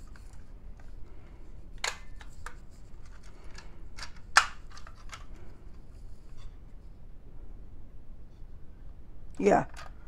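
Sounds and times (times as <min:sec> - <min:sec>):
plastic clicks and snaps: 0:01.8 - 0:05.4.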